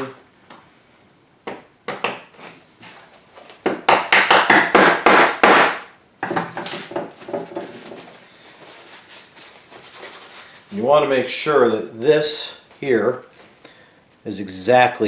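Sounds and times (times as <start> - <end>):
sharp knocks on plastic: 3.6 - 7.7
paper towel rustling: 7.7 - 11.3.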